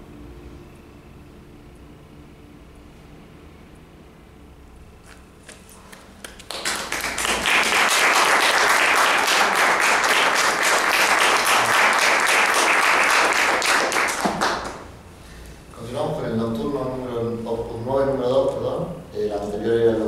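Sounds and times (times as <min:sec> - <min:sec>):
audience applauding: 0:05.9 - 0:15.0.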